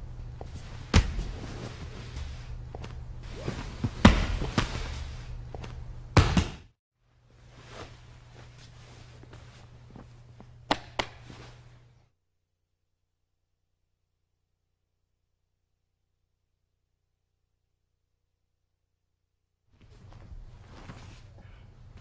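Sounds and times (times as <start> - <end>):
low steady hum: 0.0 - 6.3, 7.0 - 12.1
bodies thudding onto mat: 0.8 - 1.9, 3.4 - 5.0
cloth rustling: 7.3 - 10.6.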